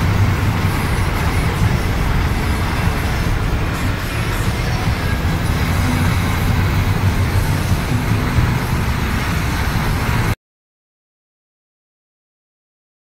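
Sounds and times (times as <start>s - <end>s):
road and tyre rumble in car cabin: 0.0s - 10.4s.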